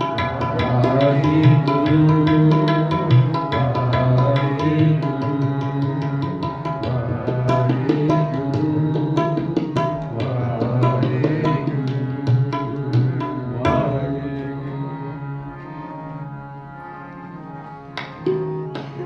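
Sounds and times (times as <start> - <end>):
tabla strokes: 0.0 - 14.4, 17.9 - 19.0
harmonium chords: 0.0 - 19.0.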